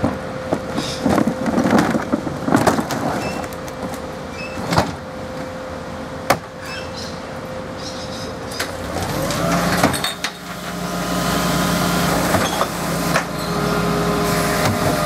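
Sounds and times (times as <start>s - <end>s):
wheelie bin clattering: 0.0s - 5.1s
garbage truck humming: 0.0s - 15.0s.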